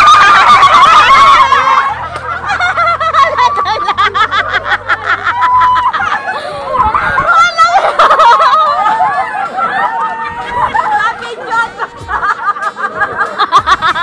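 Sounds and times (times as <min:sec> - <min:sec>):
overlapping voices: 0:00.0 - 0:14.0
people laughing: 0:00.0 - 0:14.0.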